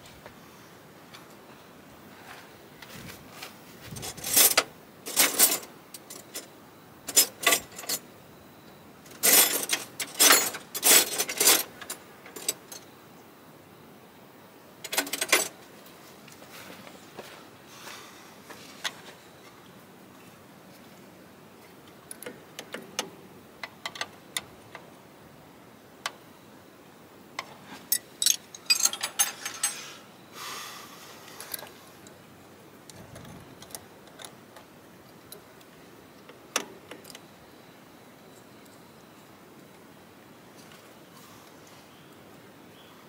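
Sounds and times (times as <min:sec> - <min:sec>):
spanner clinking on metal fittings: 0:07.1 - 0:08.0, 0:09.1 - 0:12.9, 0:27.9 - 0:29.9.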